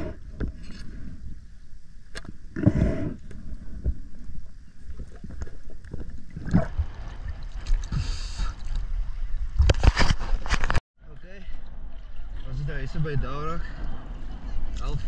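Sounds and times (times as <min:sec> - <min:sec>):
water sloshing and gurgling: 0:00.0 - 0:15.0
water splashing: 0:03.3 - 0:09.6.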